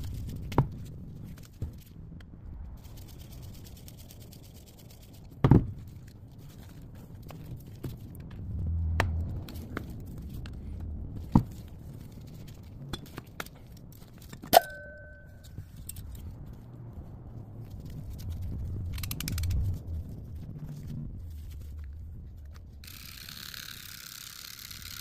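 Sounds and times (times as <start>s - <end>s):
ringing metallic clink: 14.5s - 15.6s.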